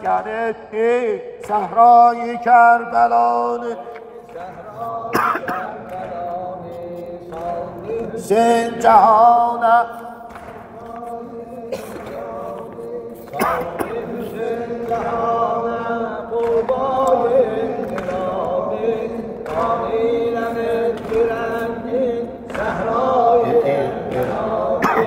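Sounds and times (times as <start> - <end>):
man chanting mourning elegy: 23.1 - 24.1.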